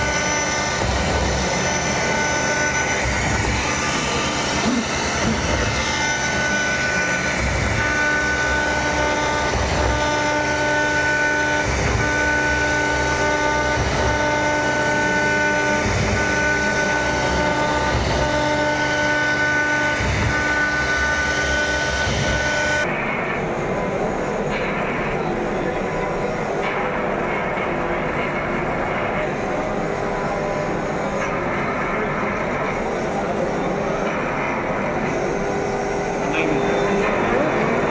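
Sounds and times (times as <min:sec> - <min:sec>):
router spindle whining: 0:00.0 - 0:23.0.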